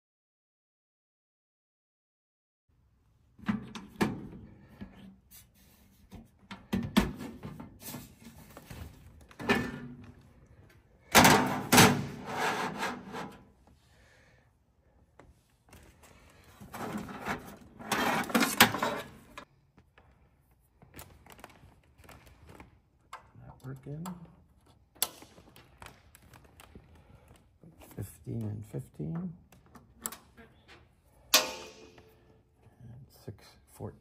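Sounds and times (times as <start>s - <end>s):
cables scraping against rack: 12.0s - 13.4s, 16.5s - 19.4s.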